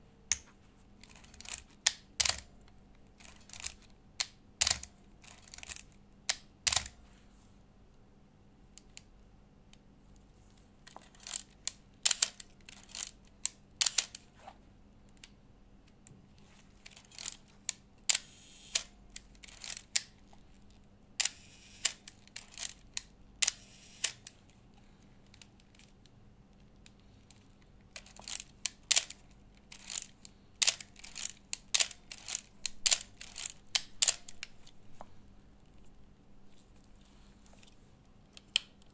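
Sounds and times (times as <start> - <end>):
camera mechanical clicks: 18.1 - 18.9, 21.2 - 22.2, 23.4 - 24.3.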